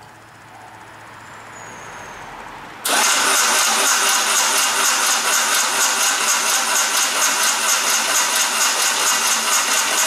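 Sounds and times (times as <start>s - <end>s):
starter motor cranking engine: 2.8s - 10.0s.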